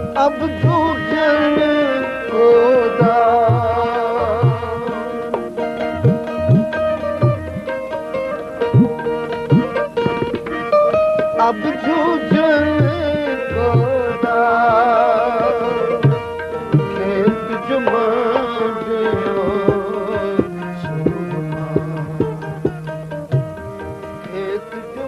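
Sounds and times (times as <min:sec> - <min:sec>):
wavering melodic line: 0:01.9 - 0:14.1.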